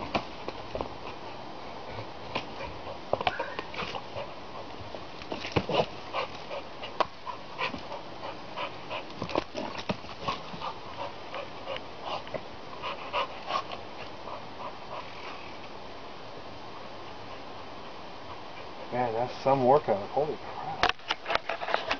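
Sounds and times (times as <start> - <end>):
dog panting hard: 2.4 - 4.8, 5.6 - 9.6, 10.2 - 15.3.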